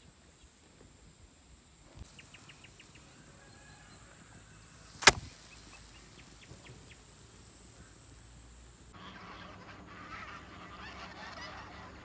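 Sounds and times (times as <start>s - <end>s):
high insect whine: 1.0s - 9.0s
sharp knock: 5.0s - 5.3s.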